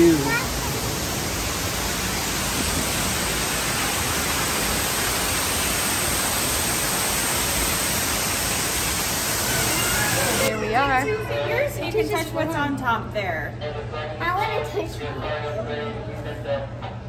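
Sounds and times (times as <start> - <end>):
waterfall rushing: 0.0 - 10.5.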